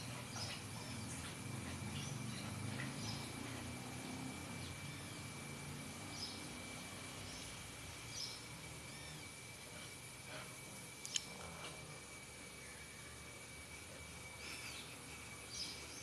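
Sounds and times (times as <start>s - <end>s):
small birds chirping: 0.0s - 3.8s, 6.0s - 9.4s, 14.4s - 16.0s.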